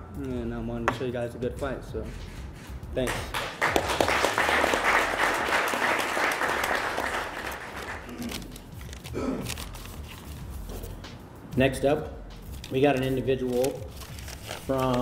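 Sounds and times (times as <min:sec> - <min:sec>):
applause: 0:03.1 - 0:08.1.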